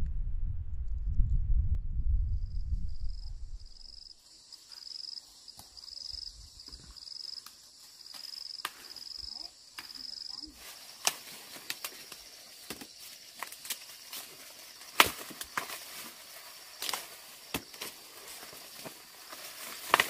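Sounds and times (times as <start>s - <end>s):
insect pulsing chirp: 2.4s - 20.0s
rustling of dry corn plants: 4.3s - 20.0s
sharp snaps of corn ears: 7.4s - 9.1s, 9.7s - 20.0s.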